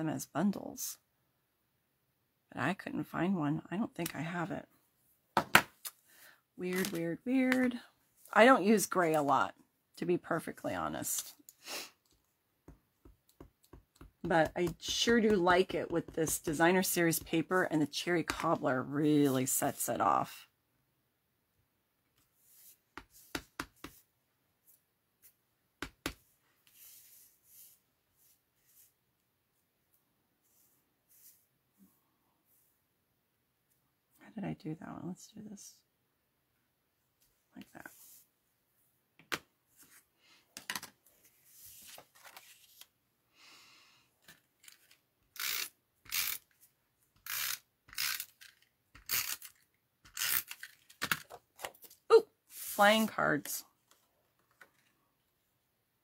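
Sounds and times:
paper rustling: 41.1 - 42.9.

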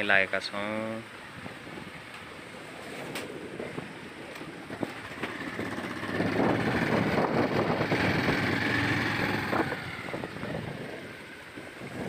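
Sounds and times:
wind on microphone: 1.2 - 12.0
gravel rattling and crunching: 2.1 - 11.0
motorcycle engine running: 4.4 - 11.1.

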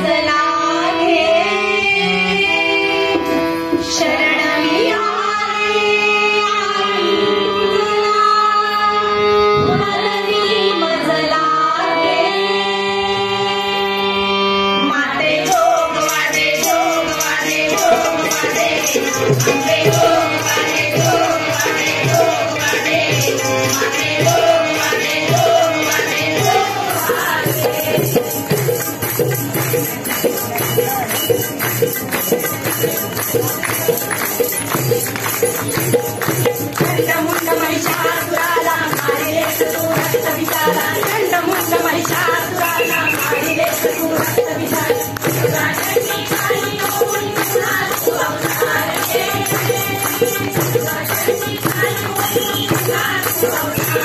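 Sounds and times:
voices singing folk song: 0.0 - 29.0, 35.4 - 54.0
drums and jingles beat: 15.6 - 54.0.

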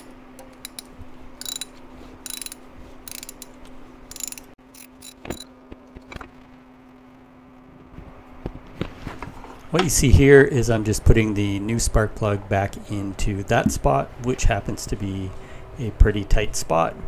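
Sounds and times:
ratchet wrench clicking: 0.0 - 5.4
steady low hum: 0.0 - 17.0.

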